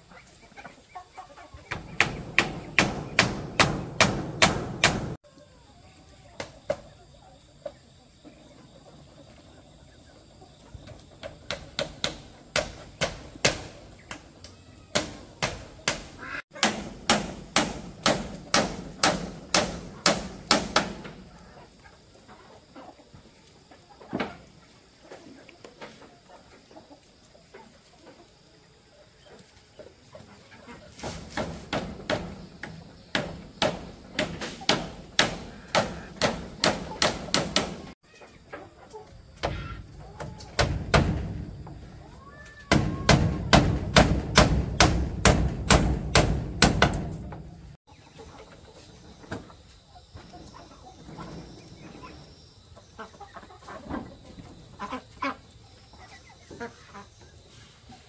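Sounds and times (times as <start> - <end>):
hammer nailing wooden boards: 1.8 - 5.2, 16.6 - 21.0, 33.2 - 37.9, 42.7 - 47.2.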